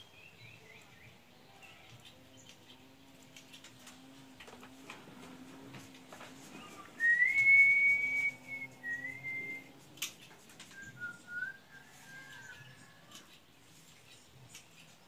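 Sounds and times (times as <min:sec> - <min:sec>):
person whistling: 0:07.0 - 0:09.7.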